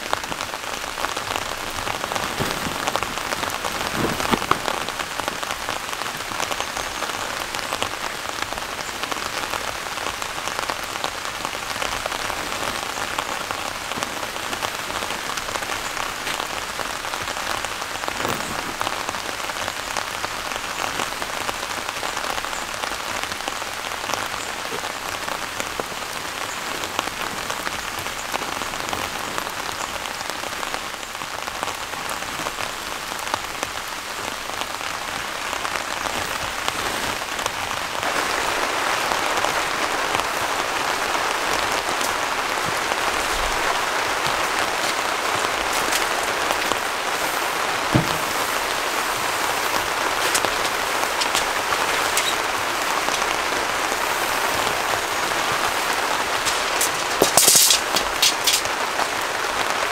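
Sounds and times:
steady rain falling: 0:00.0 - 0:59.9
dull knocks: 0:47.9 - 0:48.5.

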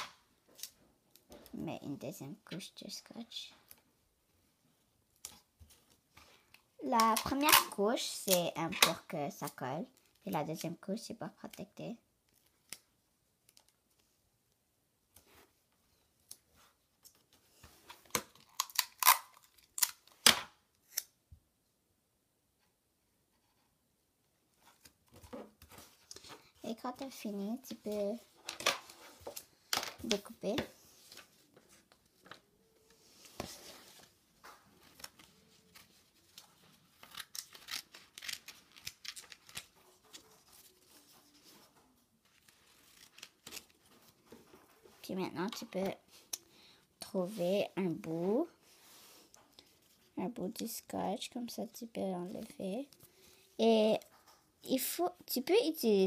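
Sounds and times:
paper and sticky tape crackling: 0:18.1 - 0:21.2, 0:33.4 - 0:44.3
scissors snipping paper: 0:37.0 - 0:40.4.

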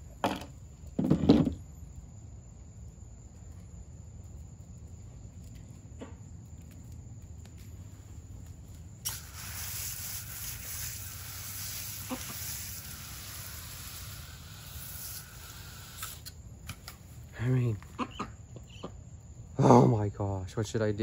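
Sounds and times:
hose spraying water: 0:09.0 - 0:16.3.

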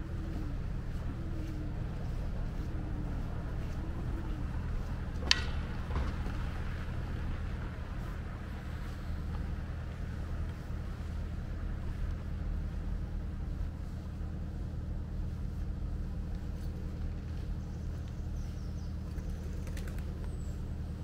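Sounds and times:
distant city traffic: 0:00.0 - 0:21.0
wooden sticks clacking together: 0:05.2 - 0:05.7.

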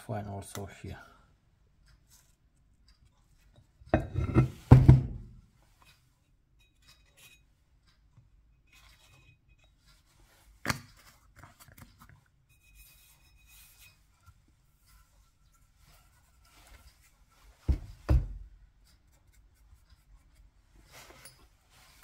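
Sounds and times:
metal parts clunking and scraping: 0:03.9 - 0:06.0, 0:06.6 - 0:08.0
small rubs and ticks: 0:08.7 - 0:17.7, 0:18.7 - 0:22.0.

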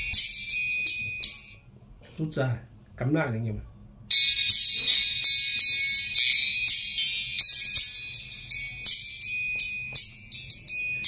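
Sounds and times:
treble-only music with hi-hats: 0:00.0 - 0:02.1, 0:04.1 - 0:11.0.

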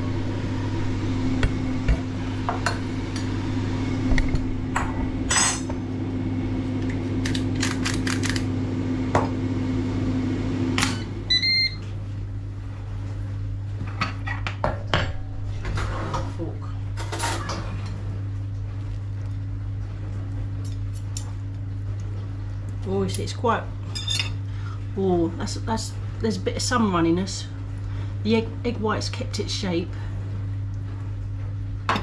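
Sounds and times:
appliance hum: 0:00.0 - 0:32.0
utensils clinking on pan and plate: 0:23.9 - 0:24.4.

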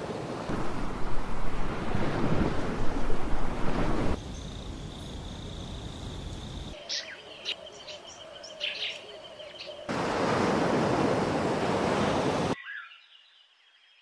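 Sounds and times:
steady rushing noise: 0:00.5 - 0:04.2.

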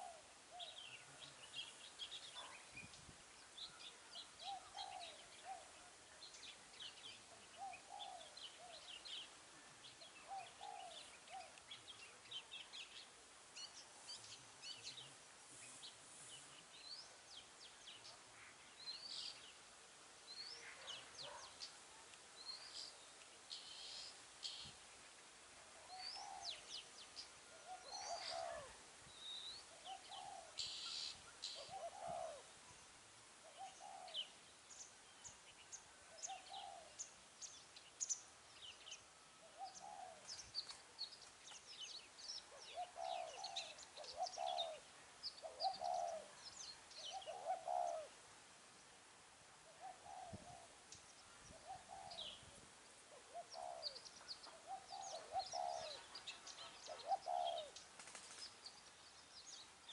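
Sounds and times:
doves cooing: 0:00.0 - 0:01.4, 0:04.1 - 0:06.0, 0:07.3 - 0:09.0, 0:10.2 - 0:11.6, 0:27.5 - 0:28.8, 0:29.7 - 0:32.5, 0:33.5 - 0:34.3, 0:36.1 - 0:37.0, 0:39.5 - 0:40.3, 0:42.5 - 0:44.8, 0:45.4 - 0:46.4, 0:47.1 - 0:48.2, 0:49.7 - 0:50.8, 0:51.5 - 0:52.4, 0:53.1 - 0:58.4
small birds chirping: 0:00.0 - 0:59.9.

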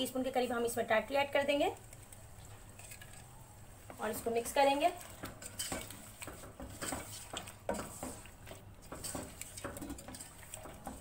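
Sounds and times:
spoon scraping and clinking pot: 0:04.1 - 0:11.0.

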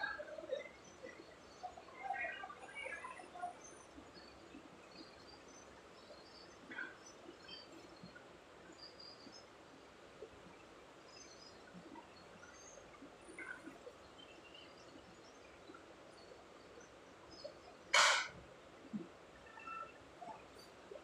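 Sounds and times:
faint background hiss: 0:00.0 - 0:21.0
faint high-pitched chirps: 0:18.9 - 0:21.0.

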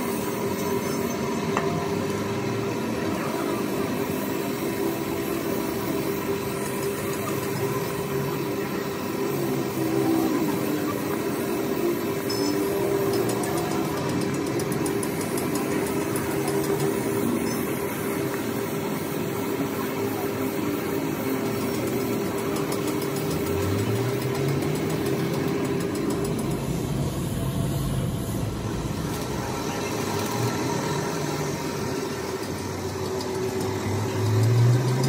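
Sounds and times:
motor humming: 0:01.4 - 0:35.0.

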